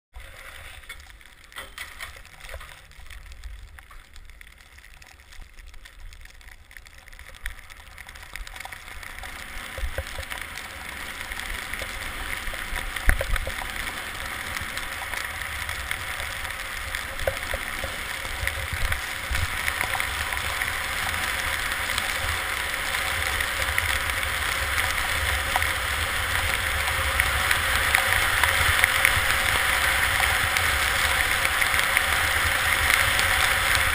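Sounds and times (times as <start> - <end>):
wind buffeting microphone: 11.3 - 31.4.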